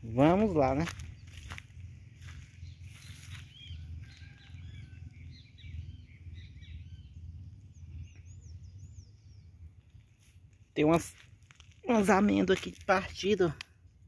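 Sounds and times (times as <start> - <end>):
low uneven rumble: 0.0 - 13.3
small birds chirping: 0.0 - 14.0.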